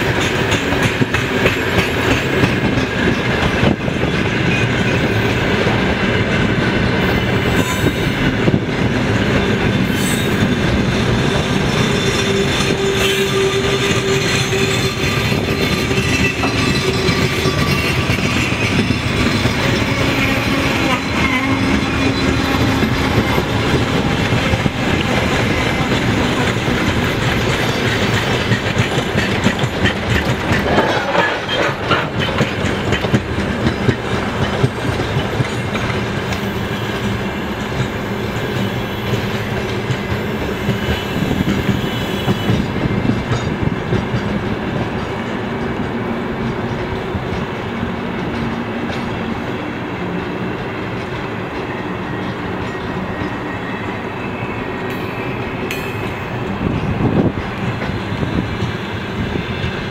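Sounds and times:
train wheels clattering over joints: 0.0 - 54.1.

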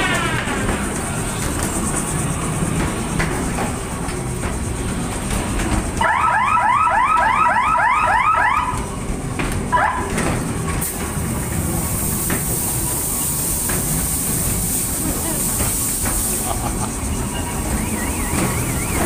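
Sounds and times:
hiss: 0.0 - 5.9, 10.7 - 19.0
ride car rumbling on track: 0.0 - 19.0.

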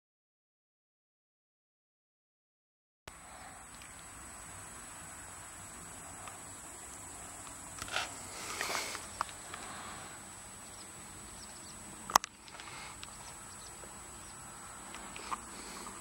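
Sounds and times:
sharp click: 12.1 - 13.2.

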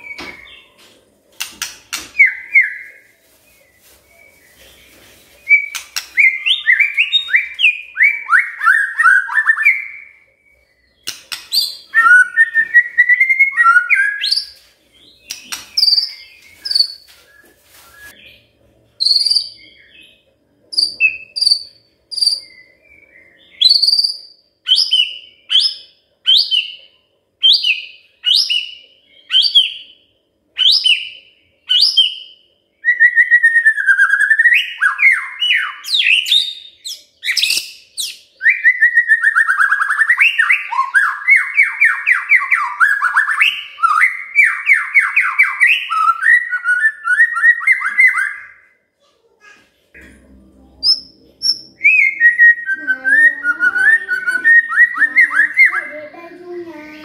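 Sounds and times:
bird singing whistled phrases: 5.5 - 14.5, 15.2 - 18.3, 19.0 - 20.2, 20.8 - 26.8, 30.6 - 48.7, 50.8 - 56.0.

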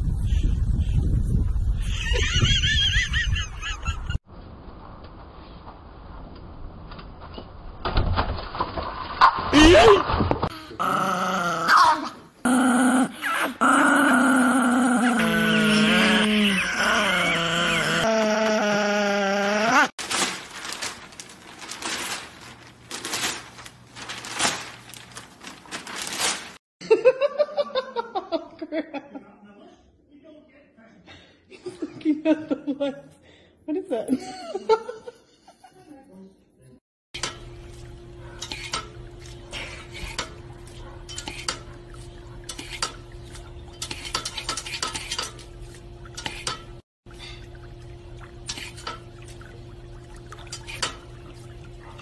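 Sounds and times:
newspaper rustling and crinkling: 20.0 - 26.6.

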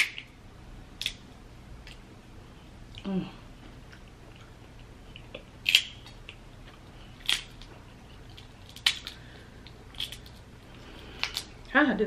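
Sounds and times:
crab shell cracking: 0.0 - 0.4, 1.0 - 1.2, 5.2 - 6.4, 7.2 - 10.5, 11.1 - 11.6.

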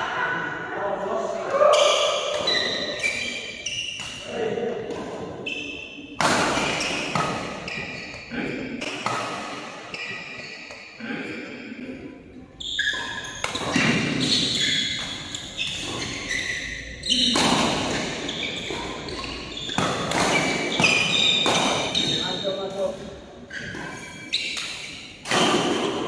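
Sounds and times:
rackets hitting shuttlecock: 2.0 - 10.9, 12.8 - 22.2, 23.6 - 26.0.

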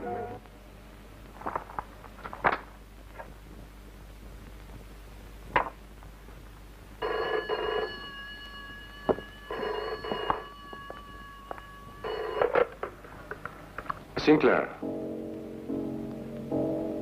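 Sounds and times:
telephone bell ringing: 7.0 - 13.2.

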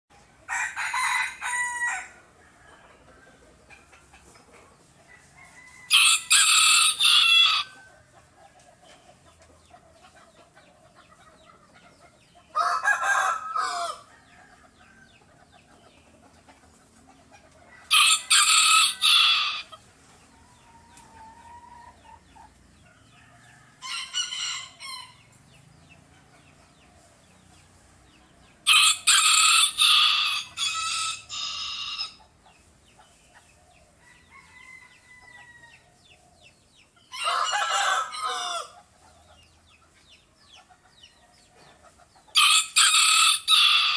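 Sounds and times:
rooster crowing: 0.5 - 2.8, 5.1 - 7.9, 12.6 - 15.0, 17.8 - 19.7, 28.6 - 32.2, 34.0 - 35.9, 37.1 - 38.8, 42.4 - 43.9.

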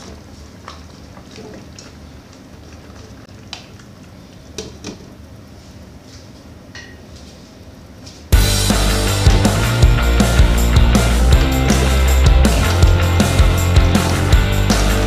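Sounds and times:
loud rock music: 8.4 - 15.0.

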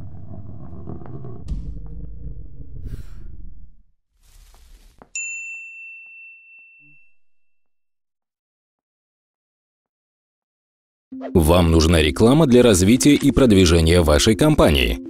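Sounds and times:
low rumble: 0.0 - 4.6
high-pitched ding: 5.2 - 7.5.

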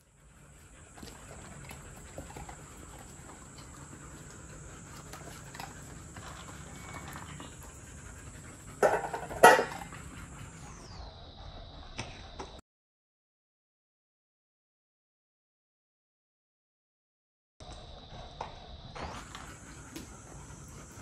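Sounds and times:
puppy panting: 0.0 - 12.5, 18.1 - 21.0.

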